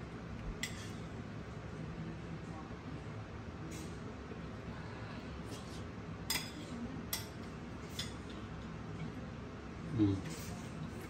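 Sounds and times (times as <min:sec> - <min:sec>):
metal spoon clinking on plate: 0:00.6 - 0:01.0, 0:06.3 - 0:08.2.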